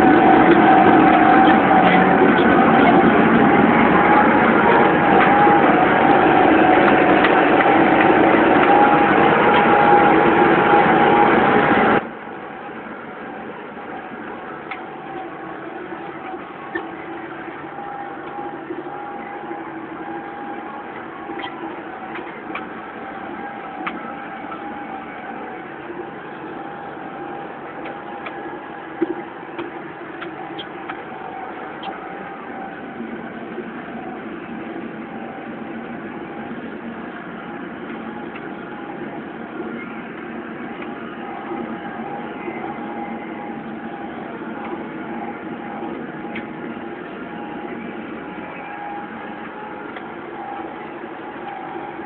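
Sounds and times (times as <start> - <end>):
tractor engine running: 0.0 - 52.0.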